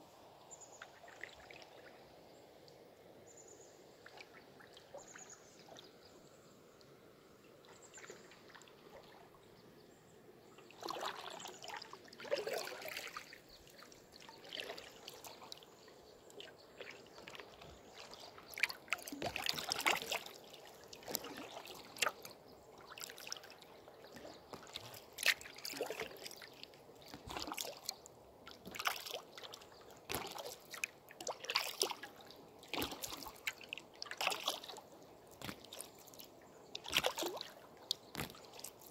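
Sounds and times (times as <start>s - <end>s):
canoe paddle splashing water: 10.6s - 38.9s.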